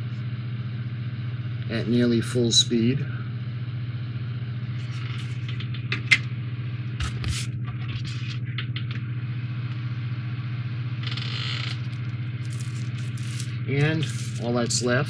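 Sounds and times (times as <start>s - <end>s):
steady low hum: 0.0s - 15.0s
cardboard and plastic parts rustling: 12.4s - 14.5s.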